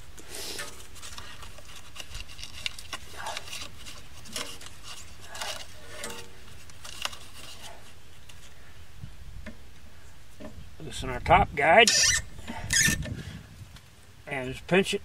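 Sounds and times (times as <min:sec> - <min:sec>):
paper rustling and scraping: 0:00.0 - 0:08.6.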